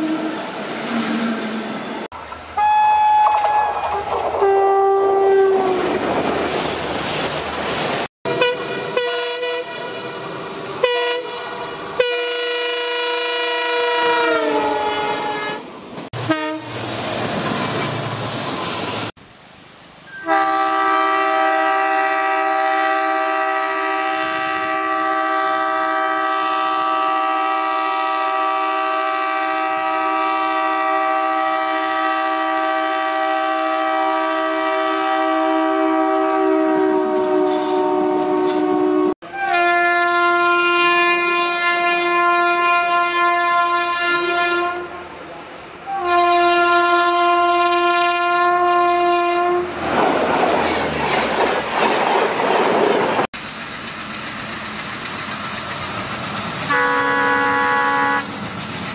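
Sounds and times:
long multi-note train horn: 0:00.0 - 0:00.4, 0:02.6 - 0:06.0, 0:08.3 - 0:16.8, 0:20.1 - 0:45.2, 0:45.8 - 0:49.8, 0:56.7 - 0:58.4
passing locomotive rumble: 0:00.0 - 0:58.9
short train horn blasts: 0:02.6 - 0:05.9, 0:08.3 - 0:16.8, 0:20.1 - 0:45.2, 0:45.9 - 0:49.7, 0:56.7 - 0:58.4.

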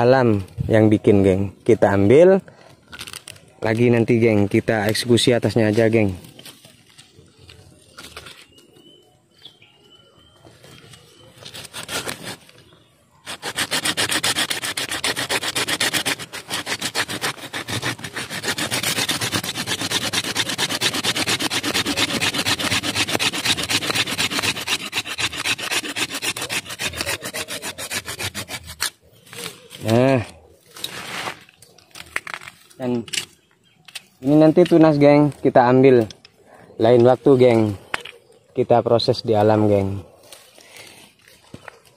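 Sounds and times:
hand saw cutting wood: 0:11.4 - 0:12.5, 0:13.2 - 0:29.9.

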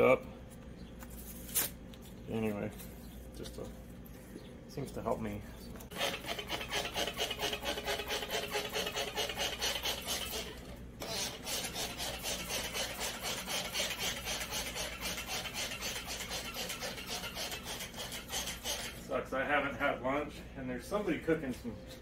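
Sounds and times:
rapid rasping strokes: 0:05.9 - 0:19.0.

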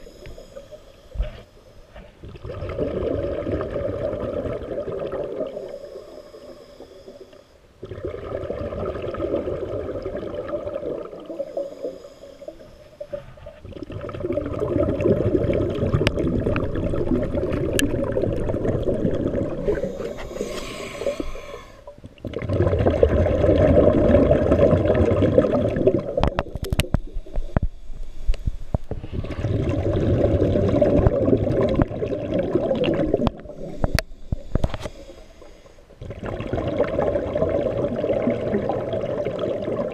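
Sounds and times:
regulator breathing underwater: 0:00.0 - 0:02.0, 0:05.3 - 0:07.7, 0:11.1 - 0:13.4, 0:17.3 - 0:22.0, 0:32.9 - 0:36.1.

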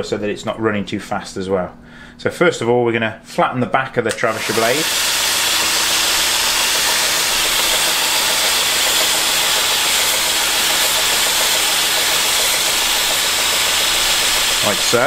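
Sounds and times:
belt grinder grinding hiss: 0:04.2 - 0:15.0.

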